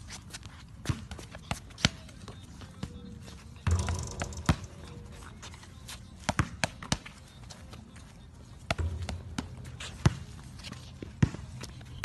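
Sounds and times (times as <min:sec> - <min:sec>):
ball bumping: 0:03.7 - 0:05.7, 0:08.7 - 0:11.7.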